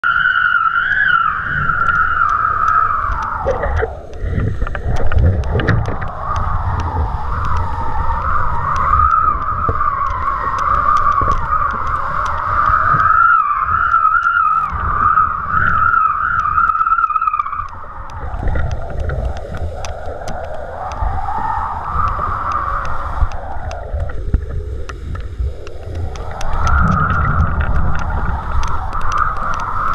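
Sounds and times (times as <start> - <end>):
high wavering whistle: 0.0 - 3.5, 12.6 - 17.9
wind buffeting camera: 0.0 - 29.9.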